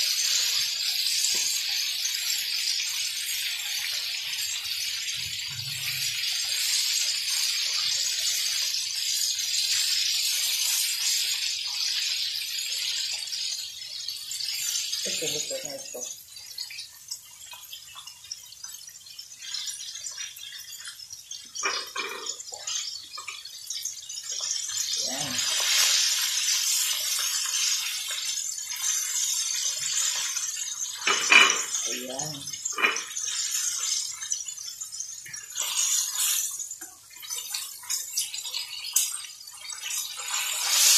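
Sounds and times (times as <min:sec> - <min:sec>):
chicken deep-frying in oil: 0:00.0 - 0:40.9
metal tongs clinking: 0:31.0 - 0:31.9.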